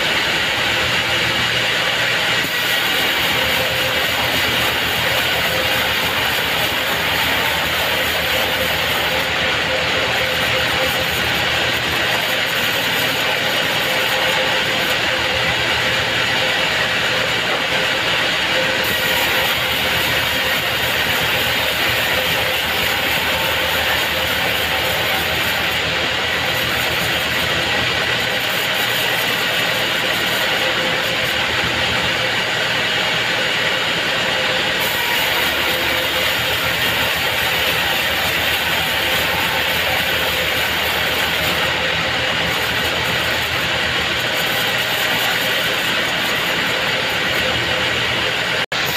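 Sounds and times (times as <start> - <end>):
band saw cutting wood: 0.0 - 48.9.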